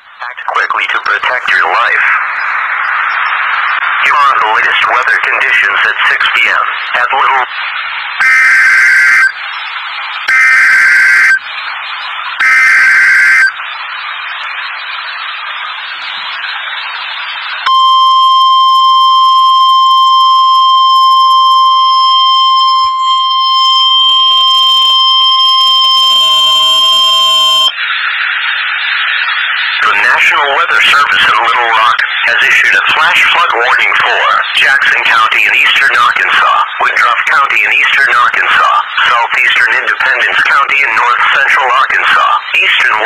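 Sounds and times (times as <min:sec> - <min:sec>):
radio hiss: 0:00.0 - 0:43.0
weather radio alarm tone: 0:02.9 - 0:07.5, 0:08.2 - 0:09.4, 0:10.2 - 0:11.5, 0:12.4 - 0:13.6, 0:17.6 - 0:27.8, 0:29.5 - 0:43.0
screeching digital data tones: 0:08.2 - 0:11.5, 0:12.3 - 0:13.6, 0:15.7 - 0:43.0.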